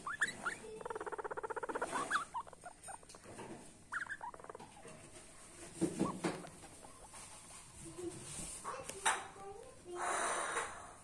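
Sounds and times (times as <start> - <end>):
guinea pig whistling: 0.0 - 3.1, 3.9 - 4.6
guinea pig chattering: 0.0 - 7.3
guinea pig squeaking: 0.0 - 9.2.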